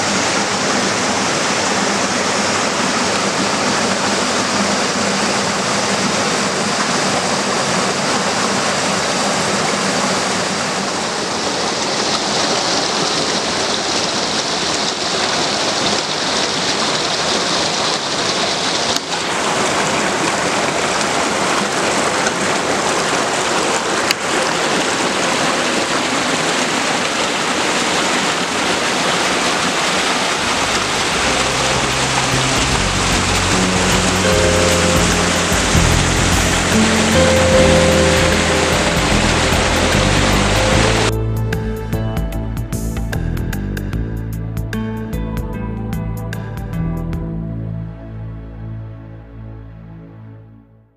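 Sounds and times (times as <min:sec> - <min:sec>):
river rushing over stones: 0:00.0 - 0:41.1
low music: 0:30.5 - 0:50.7.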